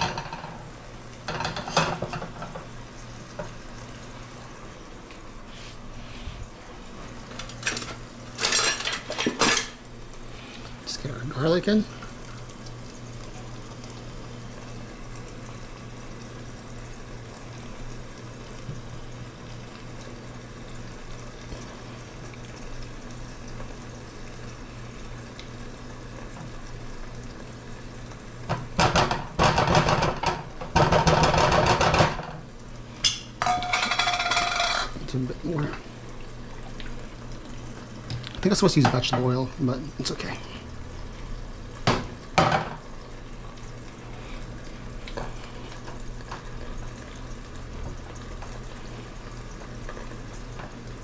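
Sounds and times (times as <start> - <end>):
utensil scraping pan: 33.4 - 35.0.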